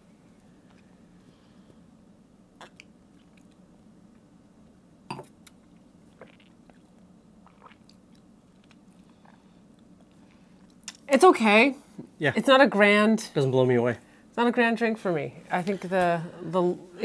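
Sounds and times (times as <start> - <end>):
low room hum: 0.0 - 17.0
people sipping: 5.1 - 11.0.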